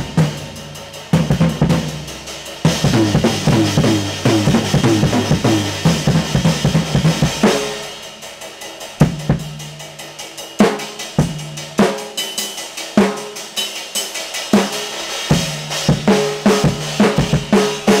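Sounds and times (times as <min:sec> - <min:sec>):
bass drum: 0:00.0 - 0:07.9, 0:09.0 - 0:09.8
tom and snare fills: 0:00.0 - 0:09.8.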